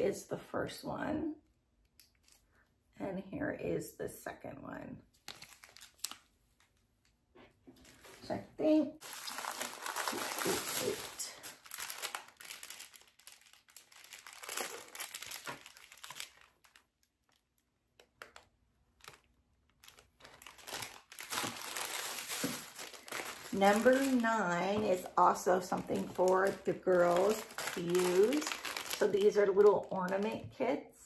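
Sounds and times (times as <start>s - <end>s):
plastic packaging crinkling: 5.1s - 6.9s, 7.8s - 8.4s, 9.0s - 30.6s.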